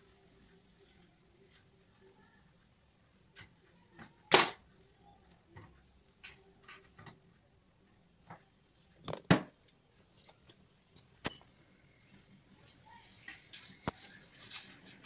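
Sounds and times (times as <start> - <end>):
faint high whine: 9.8 - 15.0.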